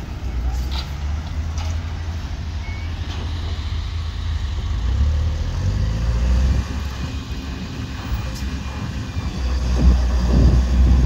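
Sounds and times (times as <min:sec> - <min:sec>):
road roller diesel engine rumbling: 0:00.0 - 0:11.0.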